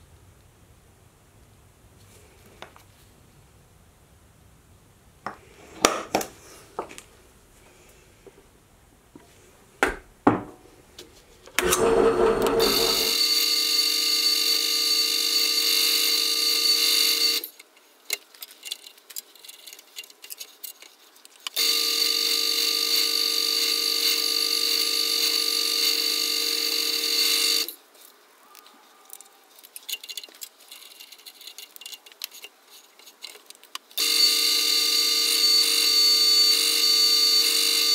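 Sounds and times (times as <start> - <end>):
drill press drilling into metal: 11.6 - 13.5.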